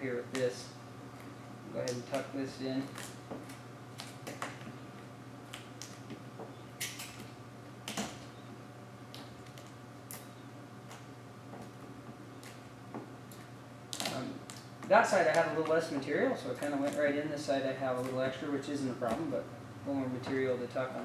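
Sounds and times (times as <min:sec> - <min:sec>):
steady low hum: 0:00.0 - 0:21.0
vinyl film crinkling and scraping: 0:13.3 - 0:19.4.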